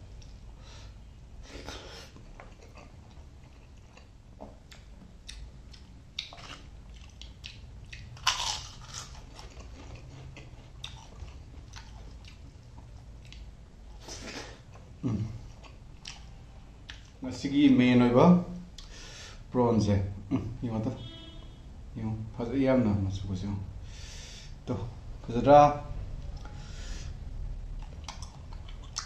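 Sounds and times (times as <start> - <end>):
person chewing food: 1.5 - 17.2, 27.7 - 29.0
food crunching: 2.1 - 14.9, 27.8 - 29.0.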